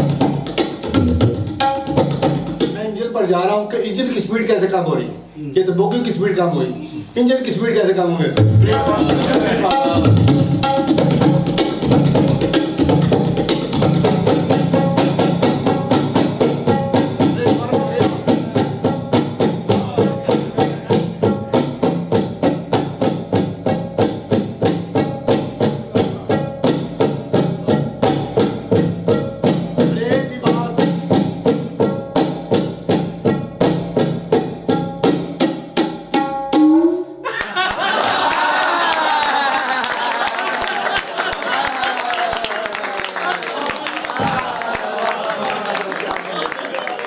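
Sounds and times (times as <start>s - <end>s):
tabla playing quick strokes: 0.0s - 2.8s
tabla rhythm: 0.0s - 47.0s.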